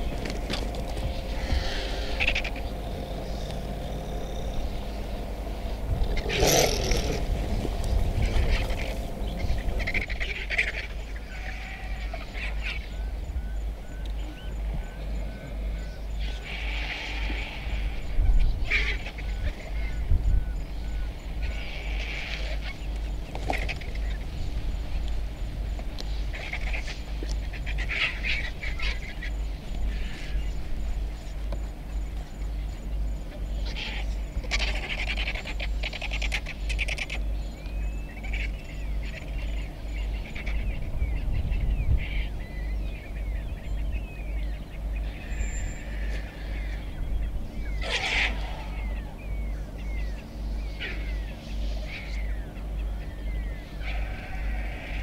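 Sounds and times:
vultures squealing and hissing: 0.0 - 12.9, 16.1 - 20.0, 21.4 - 22.9, 26.2 - 30.6, 33.5 - 37.3, 45.0 - 46.9, 47.6 - 55.0
small birds chirping: 0.0 - 55.0
steady low rumble: 0.0 - 55.0.

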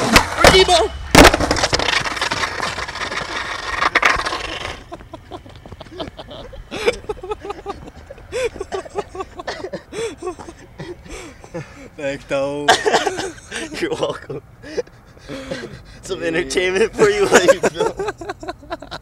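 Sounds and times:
skateboard wheels rolling on concrete: 0.0 - 10.6.

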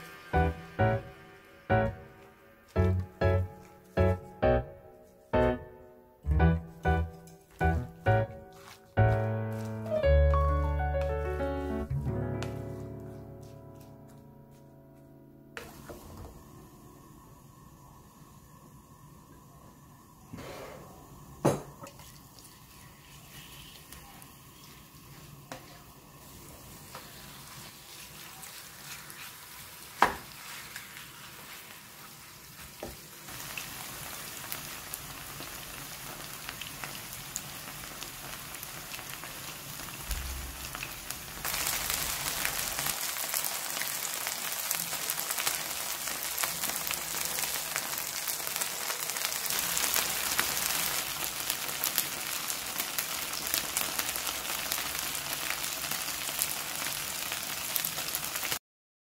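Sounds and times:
pancake batter sizzling in oil: 0.0 - 2.8, 21.4 - 58.6.

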